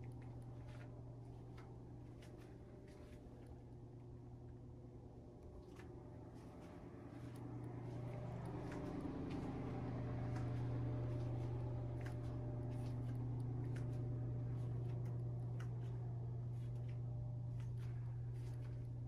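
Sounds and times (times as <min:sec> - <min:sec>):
low room hum: 0:00.0 - 0:19.0.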